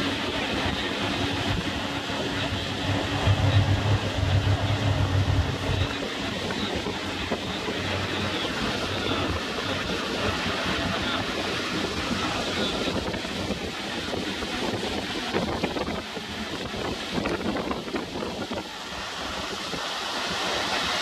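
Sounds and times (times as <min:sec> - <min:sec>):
motorboat engine hum: 0:00.0 - 0:21.0
water rushing: 0:00.0 - 0:21.0
wind buffeting microphone: 0:00.0 - 0:21.0.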